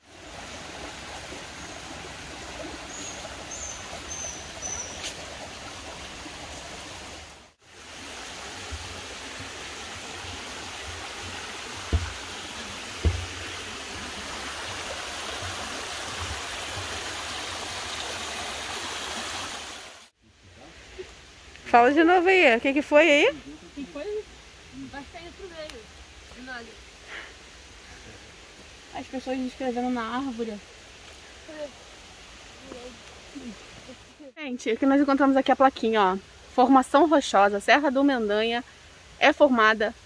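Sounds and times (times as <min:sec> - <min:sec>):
stream running over rocks: 0:00.0 - 0:40.0
dull thumps: 0:11.8 - 0:12.4, 0:13.0 - 0:13.6.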